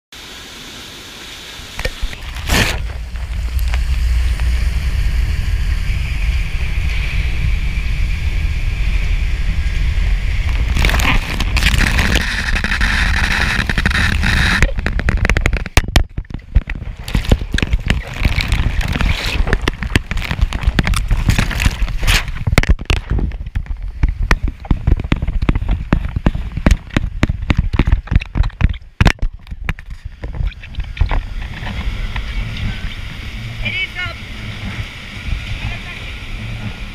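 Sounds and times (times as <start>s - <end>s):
water: 0.1s - 36.9s
conveyor machinery rumble: 2.2s - 14.6s, 31.4s - 36.9s
camera knocking and clattering: 10.5s - 31.9s.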